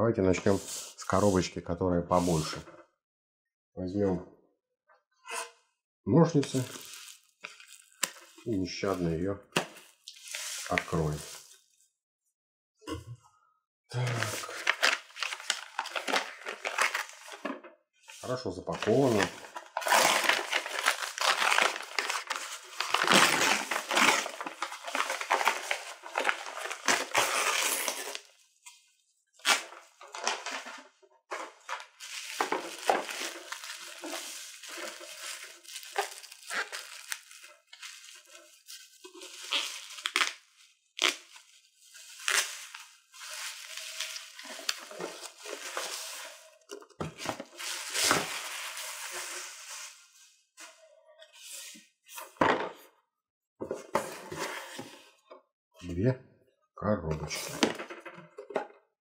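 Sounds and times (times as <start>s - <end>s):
packaging crackling and rustling: 6.5s - 8.4s, 14.2s - 17.5s, 18.8s - 28.4s, 29.4s - 49.9s
bubble wrap crinkling: 6.5s - 8.5s, 14.2s - 17.3s, 18.8s - 28.4s, 31.4s - 46.7s, 47.3s - 50.1s.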